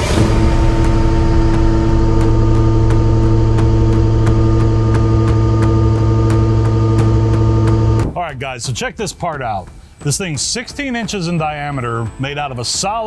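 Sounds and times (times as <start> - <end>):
milling cutter hum: 0.0 - 8.1.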